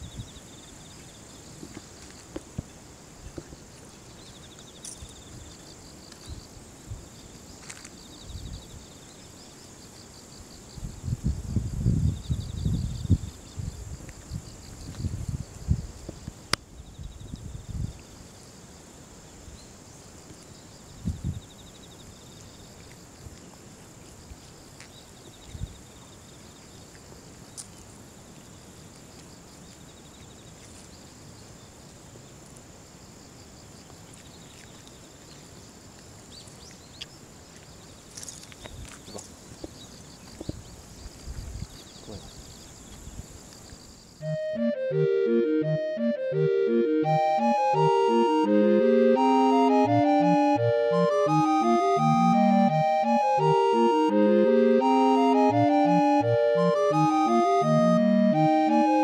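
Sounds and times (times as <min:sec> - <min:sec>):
insects buzzing and trilling: 0:00.0 - 0:44.5.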